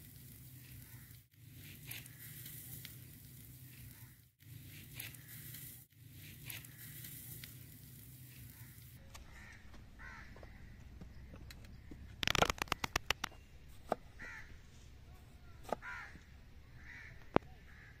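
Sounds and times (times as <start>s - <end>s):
crows cawing: 0.8s - 1.2s, 3.8s - 4.3s, 8.4s - 13.0s, 14.2s - 14.6s, 15.7s - 18.0s
fast run of sharp clicks: 11.3s - 13.4s.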